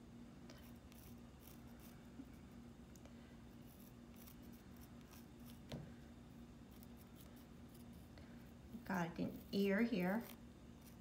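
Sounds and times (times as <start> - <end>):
low steady hum: 0.0 - 11.0
pencil scratching on stone: 0.6 - 2.0, 3.6 - 5.7, 6.7 - 8.1, 9.3 - 11.0.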